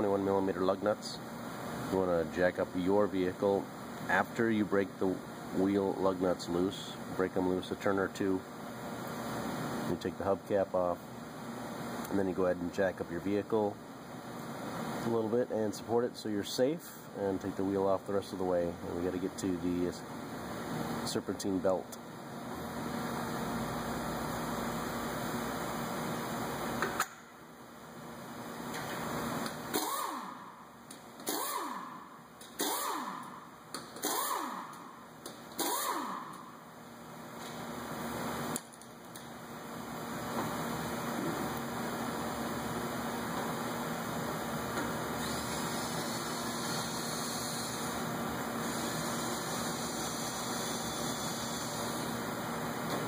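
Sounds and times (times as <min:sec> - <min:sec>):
power wrench whirring: 0:29.7 - 0:30.4, 0:31.2 - 0:33.3, 0:34.0 - 0:34.7, 0:35.5 - 0:36.4, 0:45.2 - 0:47.9.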